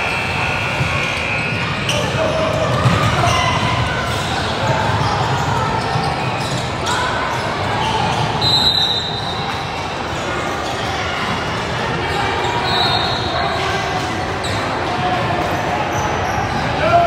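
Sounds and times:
chatter of voices: 0:00.0 - 0:17.0
ball bouncing: 0:02.5 - 0:03.8.

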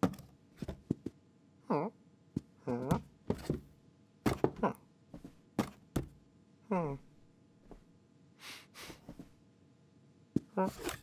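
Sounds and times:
taps and soft thuds: 0:02.4 - 0:06.2.

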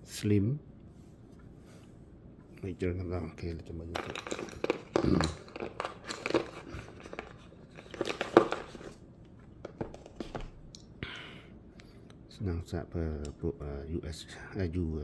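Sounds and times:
cardboard and paper packaging rustling: 0:03.9 - 0:09.0, 0:09.6 - 0:10.6.

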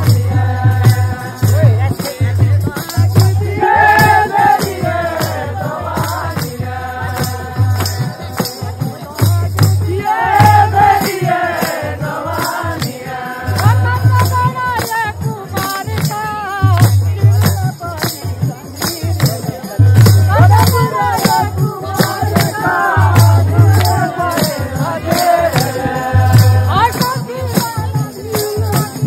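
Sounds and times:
jingling percussion: 0:00.0 - 0:29.0
low drum beat: 0:00.0 - 0:29.0.

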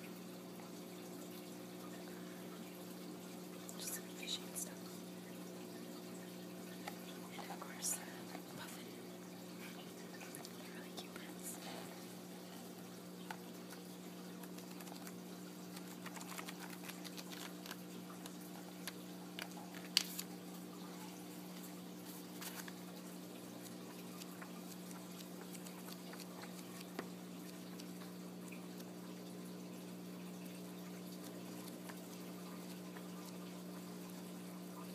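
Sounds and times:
paper pages rustling: 0:14.4 - 0:20.3, 0:22.0 - 0:23.0.

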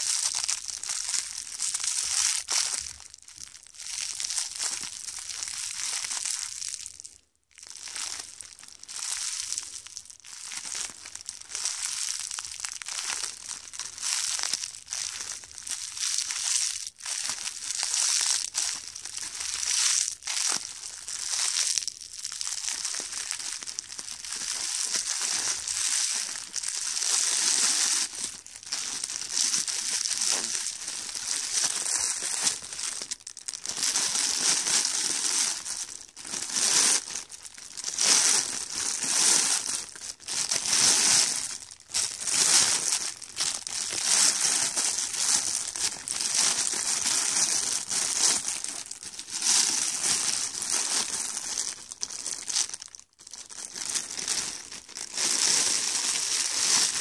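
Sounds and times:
foil balloon crinkling: 0:00.0 - 0:07.0, 0:07.6 - 0:57.0.

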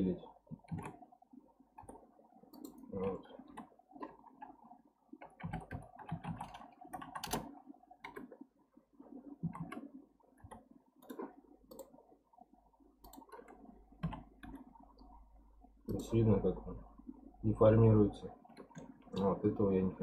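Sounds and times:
keyboard keys clicking: 0:00.6 - 0:01.0, 0:05.2 - 0:08.4, 0:09.4 - 0:11.9.

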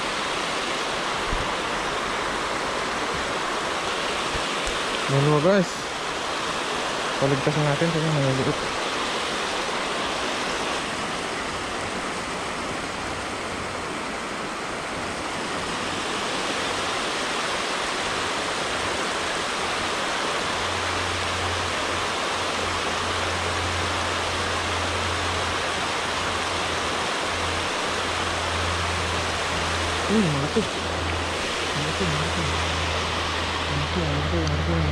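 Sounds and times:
water rushing over weir: 0:00.0 - 0:34.9.

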